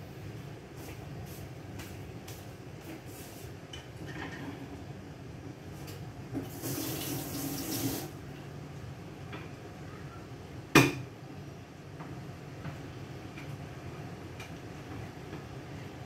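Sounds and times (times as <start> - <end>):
kitchen tap running: 6.4 - 8.2.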